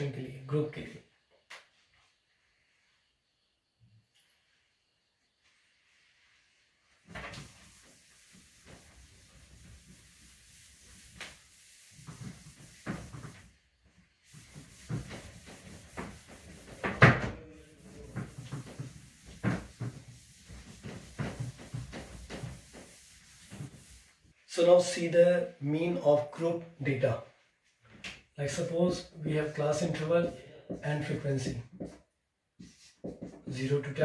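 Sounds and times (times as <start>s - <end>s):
duster rubbing whiteboard: 5.6s - 24.4s.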